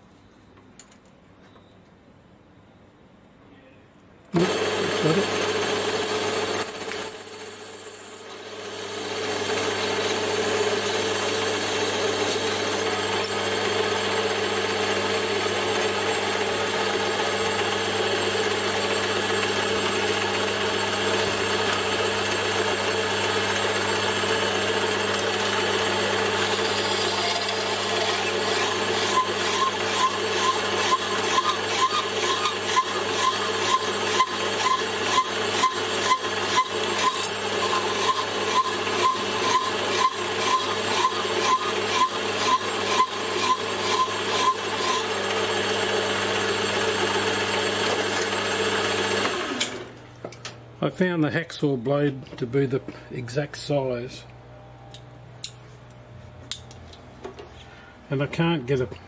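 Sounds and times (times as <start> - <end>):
metal lathe running: 4.4 - 49.9
hacksaw rasping on metal: 27.4 - 45.0.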